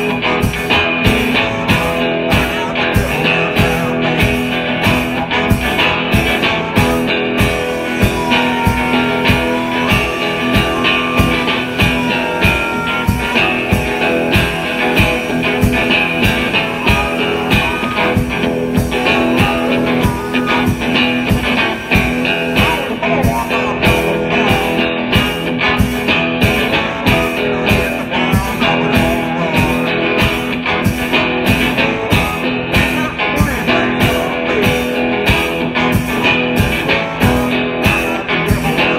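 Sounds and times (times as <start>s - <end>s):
drum kit beat: 0.0s - 38.9s
amplified harmonica playing: 6.2s - 23.2s.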